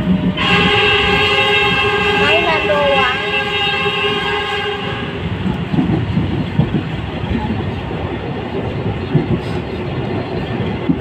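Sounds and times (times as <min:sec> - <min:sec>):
train rumbling on tracks: 0:00.0 - 0:11.0
held horn-like tone: 0:00.4 - 0:05.4.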